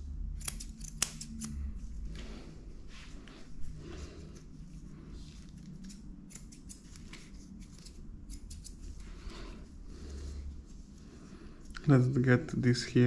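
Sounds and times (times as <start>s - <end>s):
low steady hum: 0.0s - 13.0s
scissors snipping: 0.3s - 1.6s, 5.6s - 8.9s.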